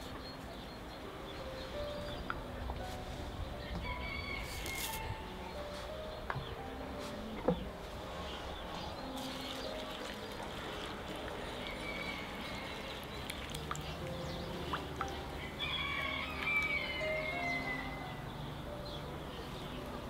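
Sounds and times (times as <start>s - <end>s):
rooster crowing: 3.7s - 5.2s, 15.4s - 18.1s.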